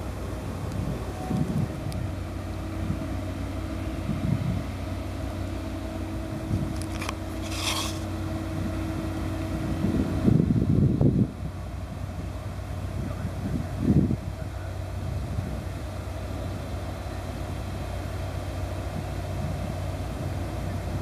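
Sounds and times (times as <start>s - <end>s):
wind rumbling on microphone: 0.0s - 5.0s, 6.2s - 17.0s.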